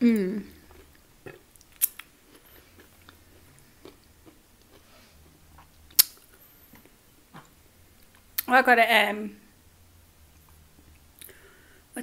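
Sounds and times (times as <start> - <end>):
chewing with wet mouth clicks: 0.7 - 4.9.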